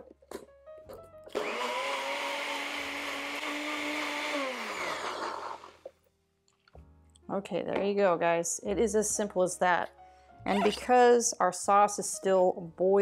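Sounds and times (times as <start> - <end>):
blender motor whining: 1.3 - 5.9.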